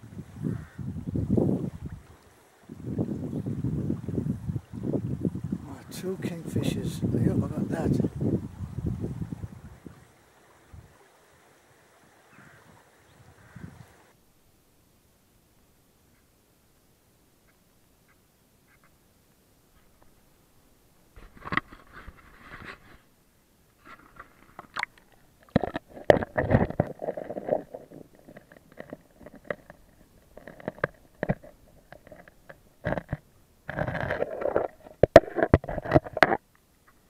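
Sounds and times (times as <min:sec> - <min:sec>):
underwater clicks and knocks: 0:21.2 - 0:23.0, 0:23.8 - 0:37.0
underwater gurgling rumble: 0:24.6 - 0:36.4.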